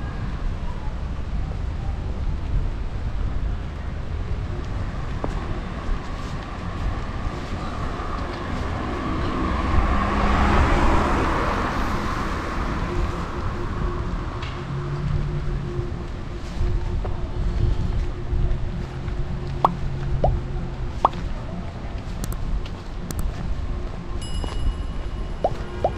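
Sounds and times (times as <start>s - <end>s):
steady low traffic rumble: 0.0s - 25.9s
vehicle passing close by: 6.7s - 13.4s.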